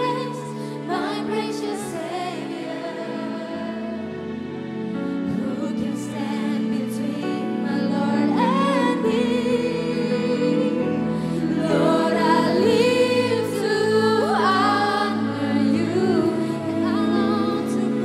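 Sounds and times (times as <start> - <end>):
women singing worship song: 0.0 - 4.2, 5.2 - 18.0.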